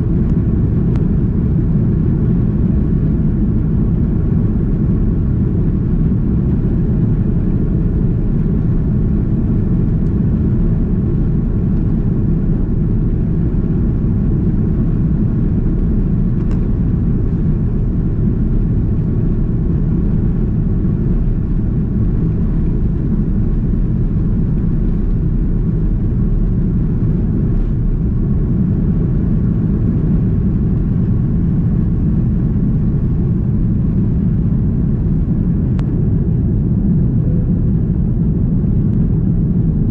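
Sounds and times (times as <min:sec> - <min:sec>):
jet engines rumbling: 0:00.0 - 0:39.9.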